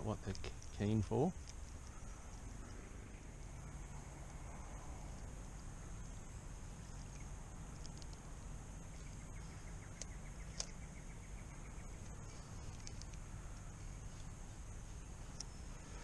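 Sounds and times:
sharp clicks: 6.9 - 8.4, 9.2 - 14.4, 15.0 - 15.8.

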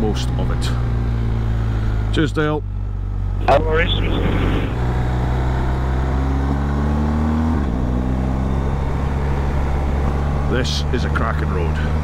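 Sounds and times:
motorcycle engine accelerating: 0.1 - 12.0
wind noise: 3.5 - 4.8.

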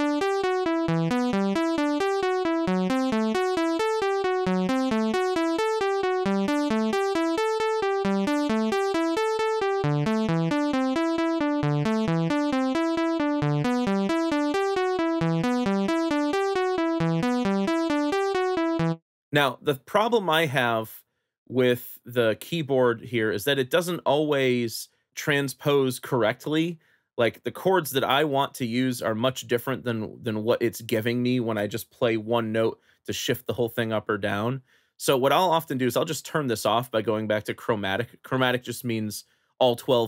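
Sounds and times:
synthesizer arpeggio: 0.0 - 19.0.

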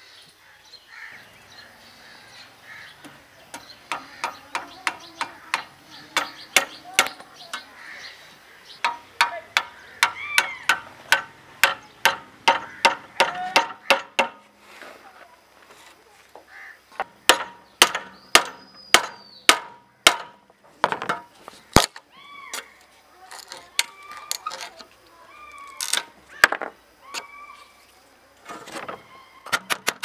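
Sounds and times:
hammer tapping on metal: 3.5 - 7.7, 8.8 - 14.4.

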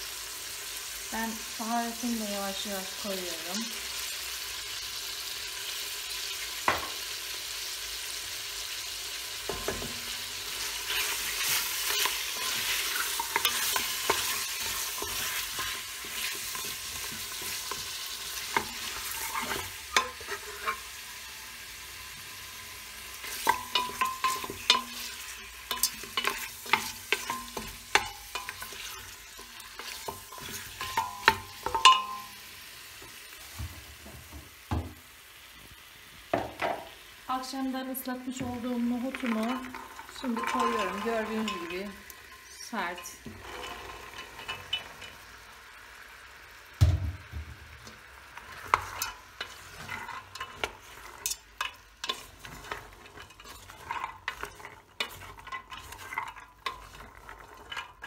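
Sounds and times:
meat sizzling in oil: 0.0 - 58.0
utensil scraping pot: 9.5 - 21.0, 23.1 - 32.4, 38.6 - 45.3, 47.8 - 58.0.

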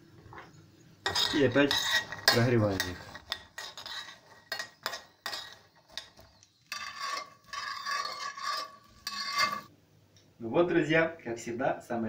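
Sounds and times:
spoon scraping frying pan: 1.0 - 9.7
steady rasping scrape: 1.0 - 9.7.

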